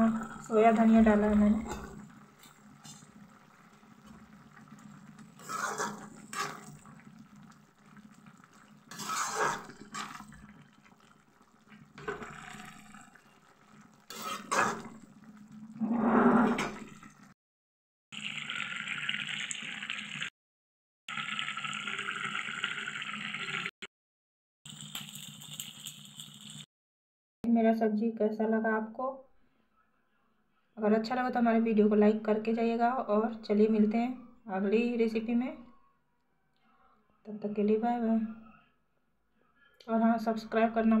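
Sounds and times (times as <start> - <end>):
curry simmering and bubbling: 0.0 - 17.4, 18.2 - 20.3, 21.1 - 23.7
spoon stirring and scraping: 1.1 - 15.3.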